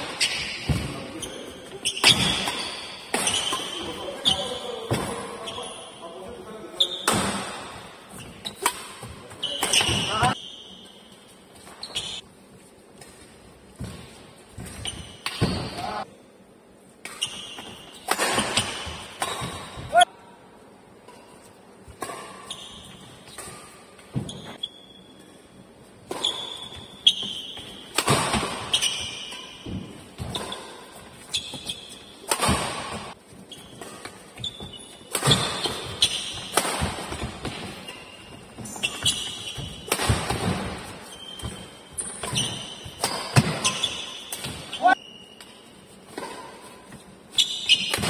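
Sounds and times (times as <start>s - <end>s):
shoes squeaking: 0.0s - 16.1s, 17.1s - 20.1s, 21.2s - 48.0s
rackets hitting shuttlecock: 1.8s - 5.3s, 7.0s - 10.4s, 17.0s - 20.1s, 26.0s - 48.0s.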